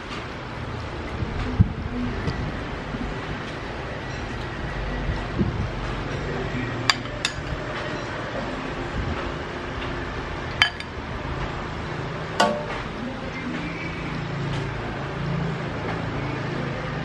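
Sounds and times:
metal ladle clinking: 10.6s - 11.0s, 12.4s - 12.8s.

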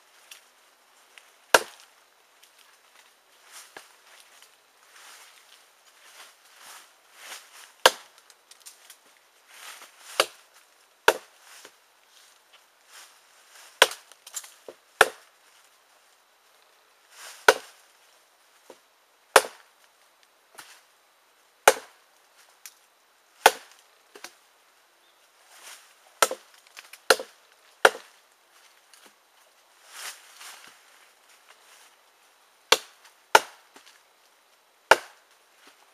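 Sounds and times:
blade chopping into log: 1.5s - 1.8s, 7.8s - 8.1s, 21.7s - 21.9s, 23.4s - 23.7s, 27.1s - 28.1s, 32.7s - 33.6s, 34.9s - 35.2s.

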